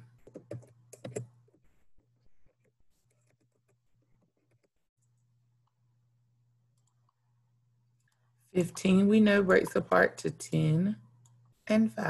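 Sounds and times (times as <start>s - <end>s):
keyboard typing: 0.0s - 1.6s, 2.5s - 5.2s
faint low hum: 0.0s - 12.0s.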